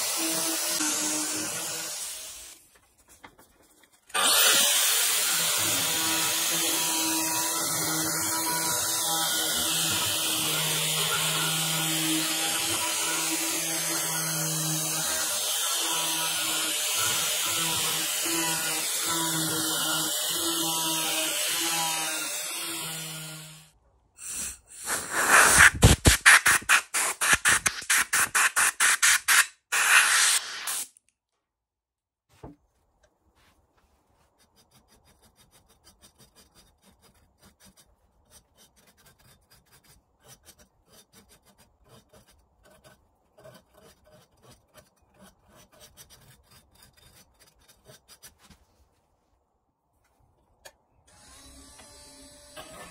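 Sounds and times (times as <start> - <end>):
angle grinder carving wood: 0.0 - 2.6, 4.1 - 30.9, 51.1 - 52.9.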